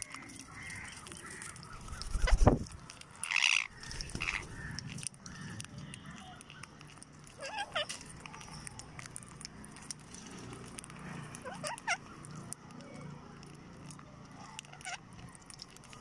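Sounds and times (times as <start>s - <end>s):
birds pecking at grain: 0.0s - 16.0s
parakeet squawks: 3.2s - 6.2s, 7.4s - 8.6s, 11.4s - 12.2s, 14.7s - 15.0s.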